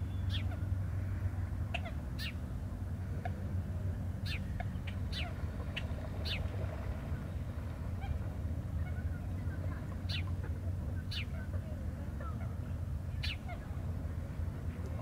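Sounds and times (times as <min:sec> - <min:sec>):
birds chirping: 0:00.0 - 0:02.5, 0:04.2 - 0:15.0
steady low hum: 0:00.0 - 0:15.0.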